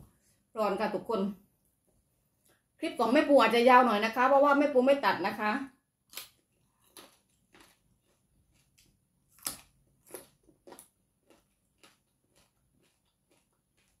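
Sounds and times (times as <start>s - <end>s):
person chewing crunchy vegetable: 6.0s - 14.0s.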